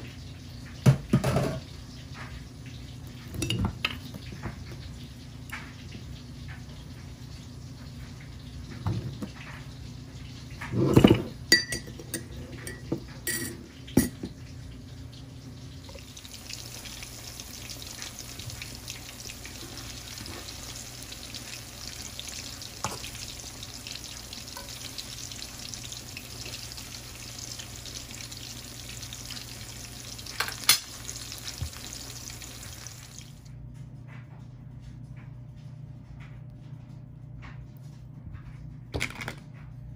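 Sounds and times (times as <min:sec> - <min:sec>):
spoon clinking in ceramic mug: 0:11.0 - 0:14.2
plantains sizzling in hot oil: 0:15.4 - 0:33.4.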